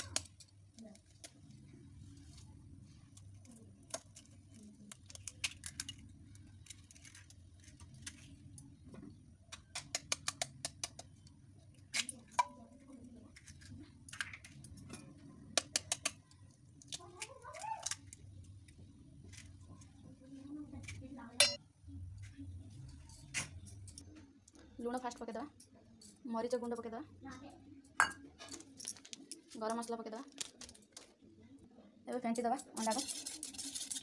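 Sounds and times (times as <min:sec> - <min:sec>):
eggs cracked on a steel bowl: 0:00.0 - 0:01.4, 0:03.8 - 0:08.3, 0:09.5 - 0:12.7, 0:13.4 - 0:18.2.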